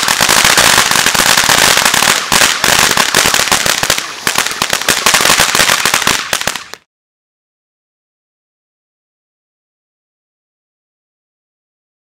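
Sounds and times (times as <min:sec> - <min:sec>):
firework fountain hissing and crackling: 0:00.0 - 0:06.9.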